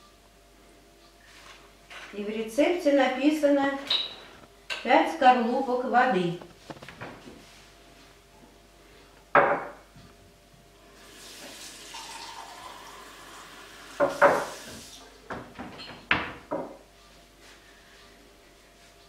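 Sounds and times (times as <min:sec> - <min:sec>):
knocks and clinks at sink: 0:09.4 - 0:09.8
tap water filling a mug: 0:11.2 - 0:14.9.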